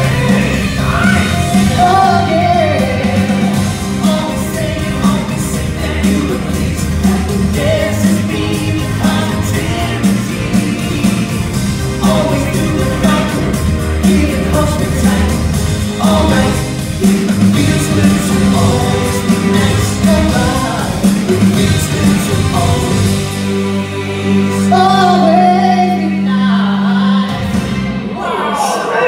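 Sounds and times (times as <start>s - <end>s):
upbeat pop song over loudspeakers: 0.0s - 29.0s.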